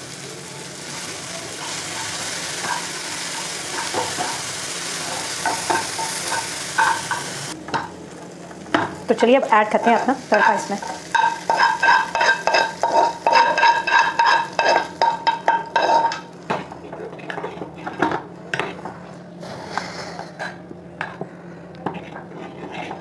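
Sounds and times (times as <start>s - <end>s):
metal spoon scraping a pan: 9.7s - 16.3s, 21.8s - 23.0s
spoon stirring in metal pot: 9.8s - 18.9s, 21.8s - 23.0s.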